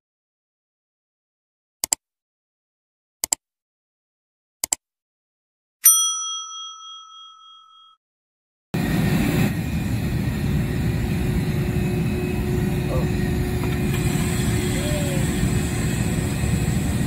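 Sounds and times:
notification bell ding: 5.8 - 8.0.

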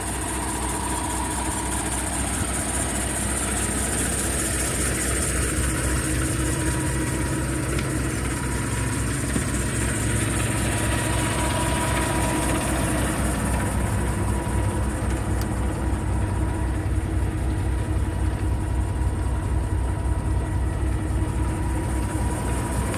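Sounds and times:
diesel truck engine idling: 0.0 - 22.9.

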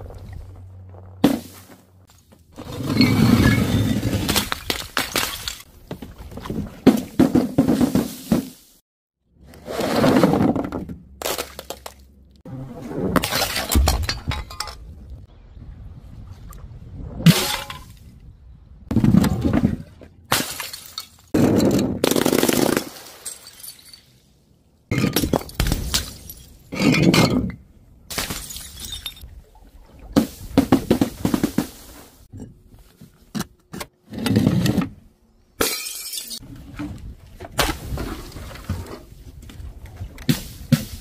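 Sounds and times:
objects smashing on ground: 3.3 - 5.7, 13.2 - 14.8
glass shattering: 22.7 - 24.1, 28.1 - 29.2, 35.6 - 36.4.

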